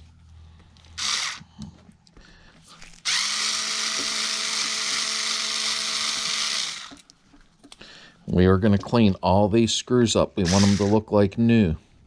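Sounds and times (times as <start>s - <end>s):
electric screwdriver whirring: 1.0s - 1.4s, 3.0s - 7.0s, 10.4s - 11.0s.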